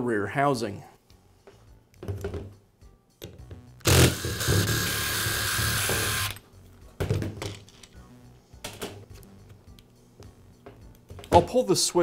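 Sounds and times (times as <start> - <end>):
power driver running: 3.8 - 6.4.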